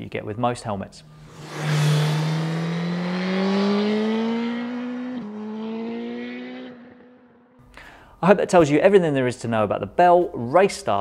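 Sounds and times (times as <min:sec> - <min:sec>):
motorcycle engine accelerating: 0:00.9 - 0:07.6.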